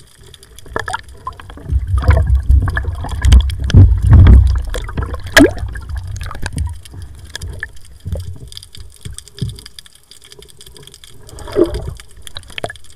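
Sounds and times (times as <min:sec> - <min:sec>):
water gurgling underwater: 0:00.6 - 0:09.0, 0:11.1 - 0:12.9.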